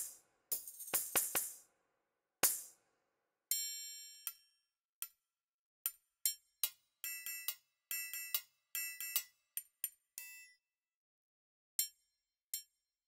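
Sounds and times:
tambourine jingling: 0.5s - 1.6s.

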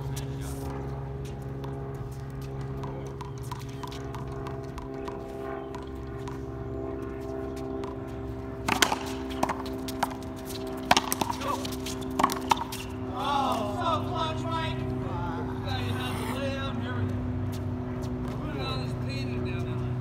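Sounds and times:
steady low hum: 0.0s - 20.0s
racquetball ball cracks: 8.6s - 10.2s, 10.8s - 12.9s.

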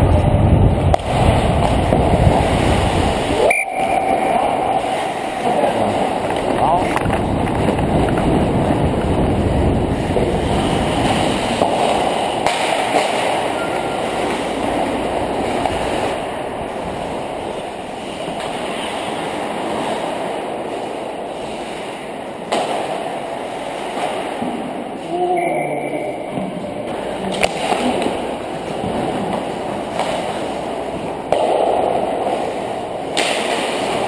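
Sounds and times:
wind on camera: 0.0s - 12.4s.

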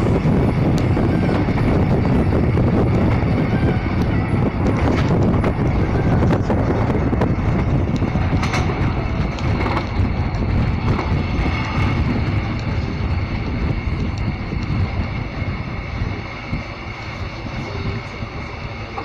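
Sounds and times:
rail clicks: 0.0s - 19.0s
train wheels rumbling on rails: 0.0s - 19.0s.

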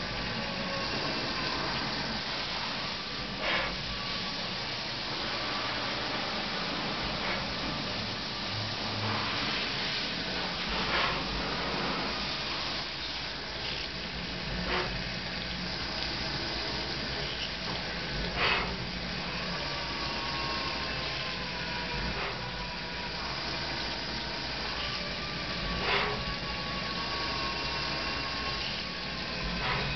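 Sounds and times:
coolant spray hissing: 0.0s - 29.9s
drill scraping metal: 0.0s - 29.9s
faint whine: 0.0s - 29.9s
milling spindle running: 0.0s - 29.9s.

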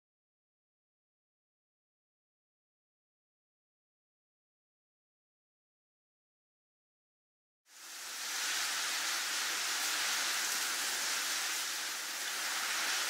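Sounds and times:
steady rushing hiss: 7.7s - 13.0s.

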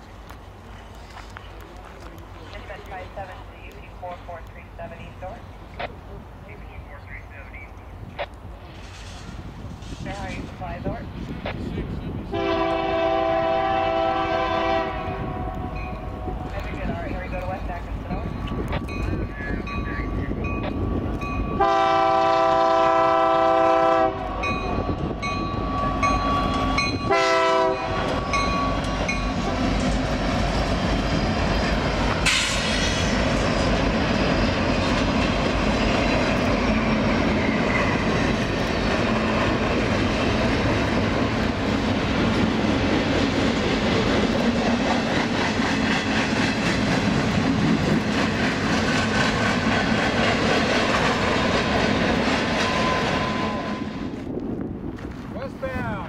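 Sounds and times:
train rumbling past: 0.0s - 56.0s
train horn blasts: 12.3s - 16.4s, 21.5s - 24.9s, 25.7s - 29.2s.

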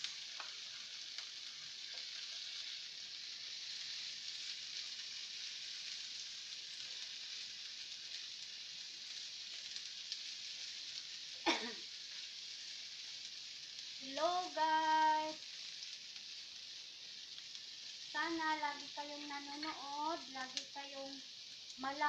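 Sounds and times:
onion and garlic sizzling in oil: 0.0s - 22.0s.

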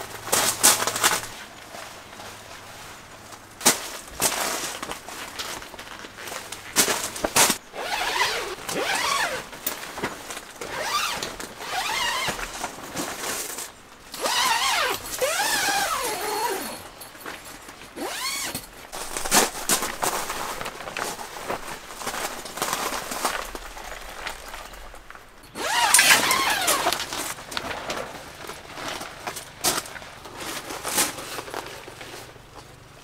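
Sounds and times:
fabric rustling: 0.4s - 32.4s
zip being pulled: 7.7s - 9.5s, 10.6s - 12.4s, 14.1s - 16.8s, 18.0s - 19.6s, 25.6s - 27.3s.

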